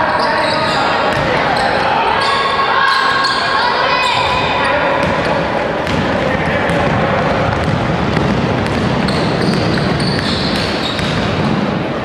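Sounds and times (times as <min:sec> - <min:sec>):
players running on court: 0:04.2 - 0:11.8.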